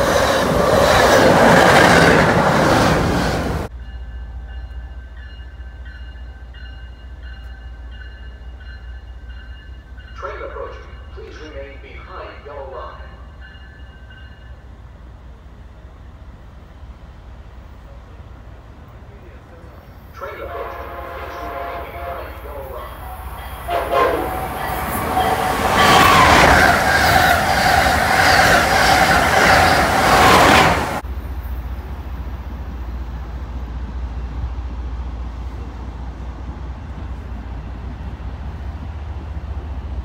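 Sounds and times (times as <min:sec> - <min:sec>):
train rushing past on rails: 0:00.0 - 0:40.0
train horn blasts: 0:20.2 - 0:26.4.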